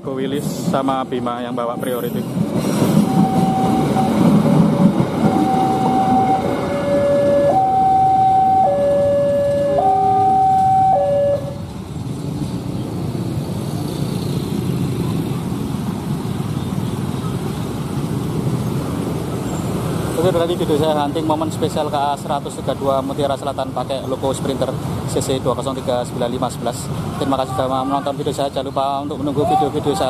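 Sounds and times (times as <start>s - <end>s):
motorbike traffic: 0.0s - 30.0s
train rumbling past: 0.0s - 30.0s
level crossing two-note warning tone: 5.2s - 11.6s.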